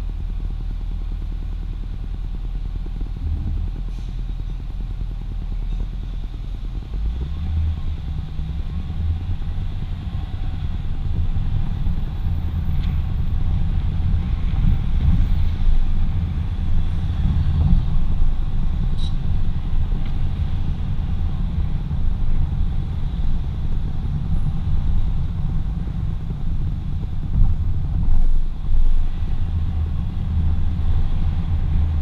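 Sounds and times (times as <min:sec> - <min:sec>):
car engine rumble: 0:00.0 - 0:32.0.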